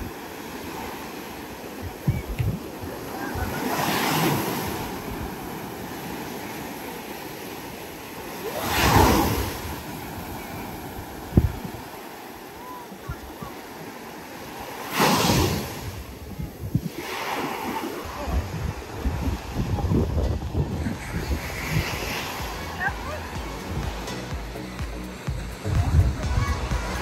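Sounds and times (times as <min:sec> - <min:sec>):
sea waves breaking on beach: 0:00.0 - 0:27.0
wind buffeting microphone: 0:01.8 - 0:03.6, 0:08.8 - 0:12.0, 0:15.3 - 0:17.1, 0:18.0 - 0:24.0.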